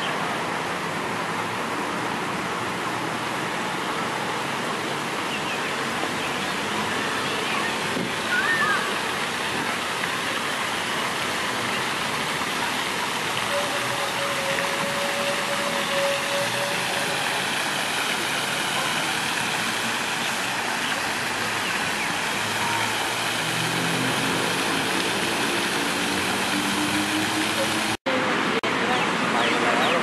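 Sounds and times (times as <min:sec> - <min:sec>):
fountain spray rushing: 0:00.0 - 0:30.0
high held tone: 0:13.4 - 0:17.5.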